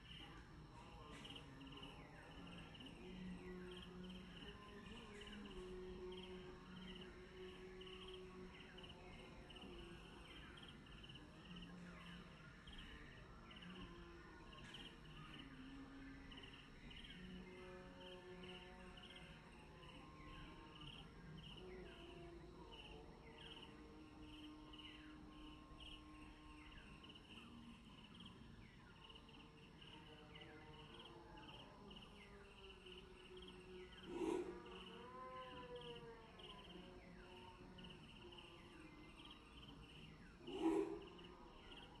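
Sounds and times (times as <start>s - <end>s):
harsh bird calls: 32.7s - 37.1s, 37.9s - 42.0s.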